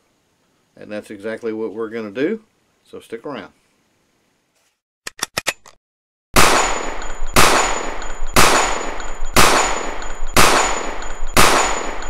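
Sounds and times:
gunshots: 6.4 - 12.0.

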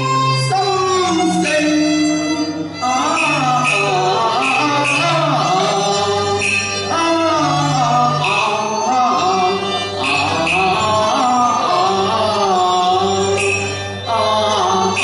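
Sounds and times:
opera ensemble wavering melody: 0.0 - 15.0.

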